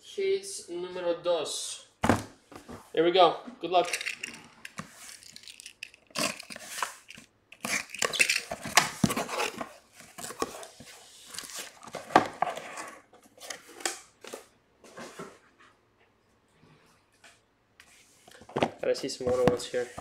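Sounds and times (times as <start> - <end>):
sharp knocks of boxes: 2.0 - 2.4
cardboard scraping and rustling: 6.2 - 13.8.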